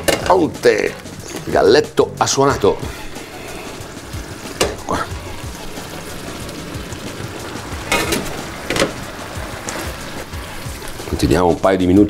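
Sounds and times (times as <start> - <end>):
background music: 0.0 - 12.0
vegetables sizzling in a frying pan: 2.8 - 12.0.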